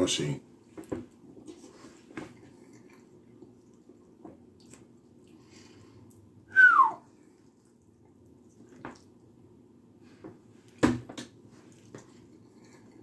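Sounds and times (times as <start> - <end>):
low steady hum: 0.0 - 13.0
soft chewing: 0.6 - 6.4, 7.1 - 10.8, 11.4 - 13.0
whistle-like tone sliding down: 6.5 - 7.0.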